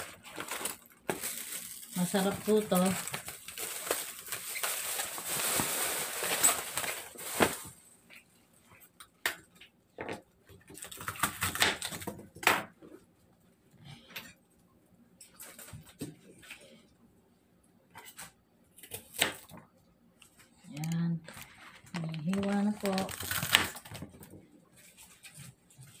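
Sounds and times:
plastic bag crinkling: 0:00.0 - 0:07.9, 0:21.2 - 0:26.0.

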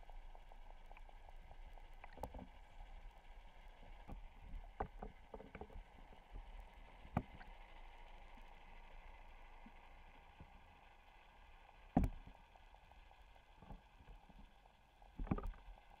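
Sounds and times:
low underwater hum: 0:00.0 - 0:16.0
underwater knocks and clicks: 0:01.9 - 0:02.9, 0:03.7 - 0:07.7, 0:11.9 - 0:12.4, 0:13.6 - 0:15.9.

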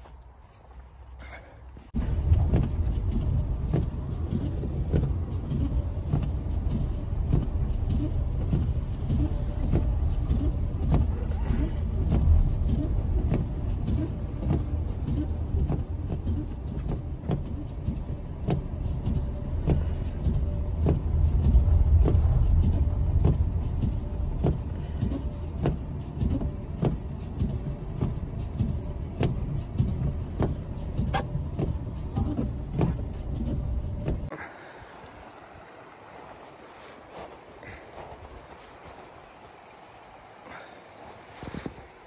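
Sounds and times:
engine and tyres rumbling: 0:00.0 - 0:42.0.

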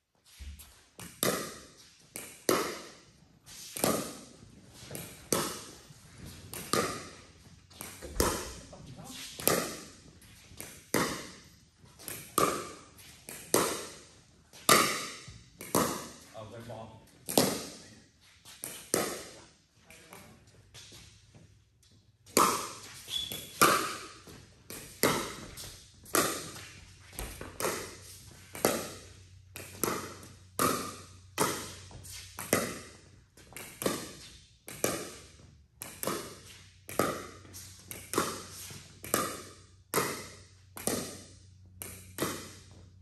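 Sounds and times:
pickleball paddle hits echoing: 0:01.0 - 0:03.0, 0:03.8 - 0:04.3, 0:04.9 - 0:05.8, 0:06.5 - 0:08.7, 0:09.4 - 0:10.0, 0:10.6 - 0:16.3, 0:17.2 - 0:17.8, 0:18.6 - 0:19.4, 0:22.3 - 0:42.8.

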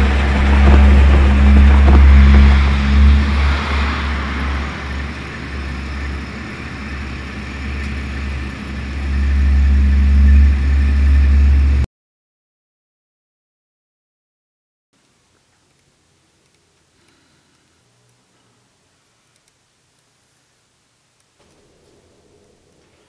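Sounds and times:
car engine idling: 0:00.0 - 0:11.8.

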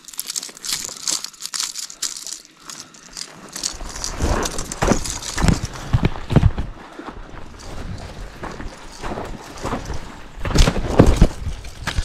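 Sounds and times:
footsteps on dry grass and gravel: 0:00.0 - 0:12.0
heavy thudding footsteps: 0:03.8 - 0:11.6.

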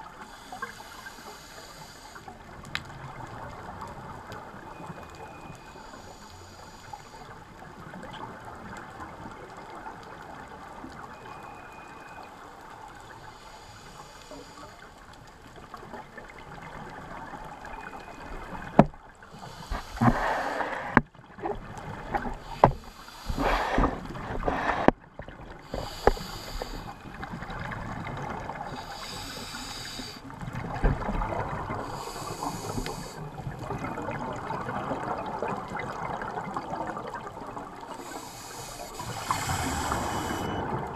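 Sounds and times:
regulator breathing hiss: 0:00.2 - 0:02.3, 0:05.6 - 0:07.4, 0:13.2 - 0:14.9, 0:19.3 - 0:21.0, 0:22.4 - 0:24.9, 0:25.6 - 0:27.1, 0:28.7 - 0:30.3, 0:31.8 - 0:33.2, 0:37.9 - 0:40.6.

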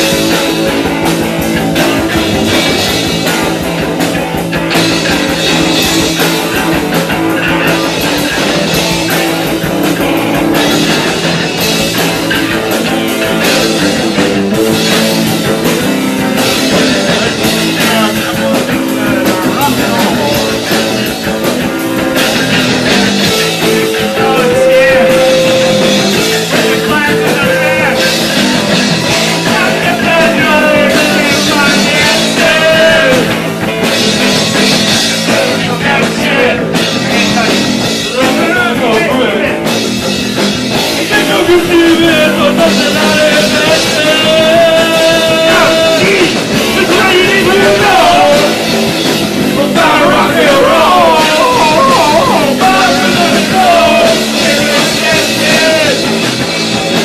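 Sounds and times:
bass guitar: 0:00.0 - 0:57.0
distorted electric guitars: 0:00.0 - 0:57.0
drum kit: 0:00.0 - 0:57.0.

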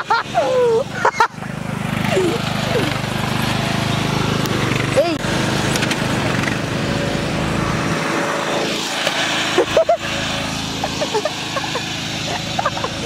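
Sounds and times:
riding lawn mower engine: 0:00.0 - 0:13.0.

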